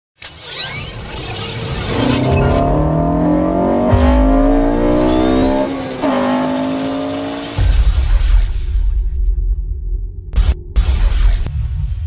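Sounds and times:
car engine accelerating hard: 1.8 - 7.8.

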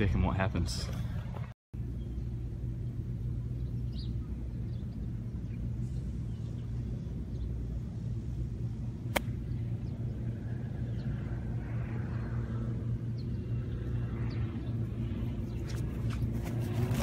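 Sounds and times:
golf club striking ball: 9.1 - 9.4.

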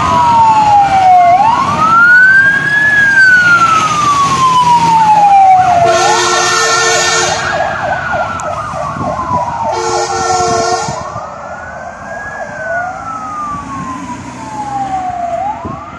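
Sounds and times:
fire engine sirens wailing: 0.0 - 15.9
vehicle horn blasts: 5.8 - 7.5, 9.7 - 11.0.

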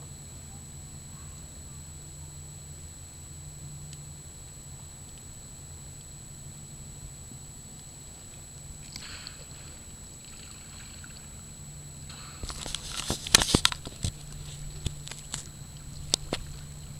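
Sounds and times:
faint steady hum: 0.0 - 16.9
water sloshing against kayak: 8.2 - 16.9
water splashing: 8.8 - 16.9.

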